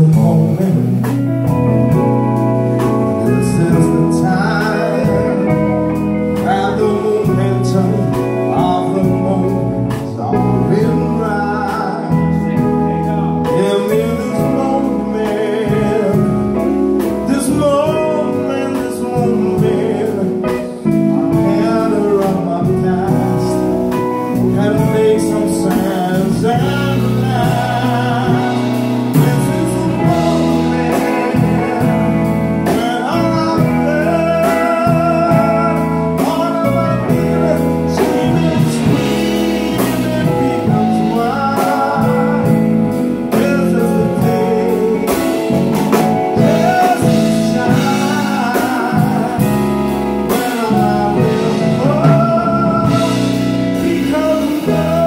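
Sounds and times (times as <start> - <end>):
drum kit: 0.0 - 55.0
electric bass: 0.0 - 55.0
electric guitars: 0.0 - 55.0
man singing into a microphone: 0.0 - 55.0.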